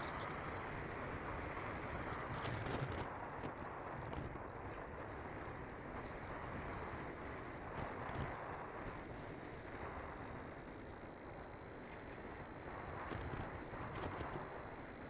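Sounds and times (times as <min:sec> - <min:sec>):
wind noise on microphone: 0:00.0 - 0:08.9, 0:12.7 - 0:14.8.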